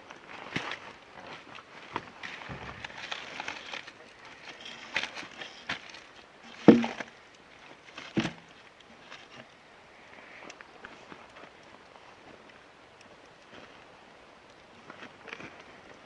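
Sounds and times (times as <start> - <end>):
rustling: 0.0 - 9.5
footsteps: 0.6 - 6.0
dull wooden knocks: 6.6 - 7.1.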